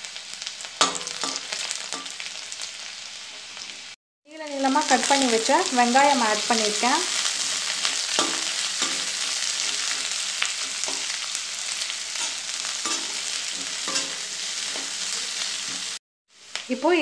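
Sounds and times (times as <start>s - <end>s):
onions and garlic sizzling in oil: 0.0s - 17.0s
metal spatula scraping pan: 7.1s - 11.3s, 12.2s - 16.0s.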